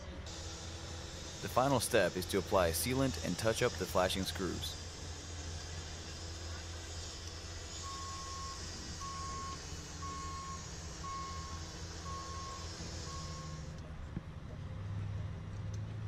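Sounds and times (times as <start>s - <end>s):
low engine rumble: 0.0s - 16.0s
reversing alarm beeping: 7.6s - 13.7s.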